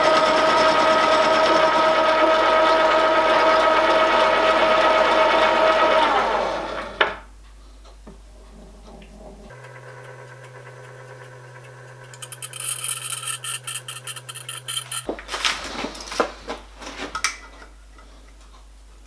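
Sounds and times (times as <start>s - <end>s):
milling machine humming: 9.5s - 15.1s
caliper clicking on metal table: 12.1s - 15.1s
fast rattle of sharp ticks: 12.1s - 15.1s.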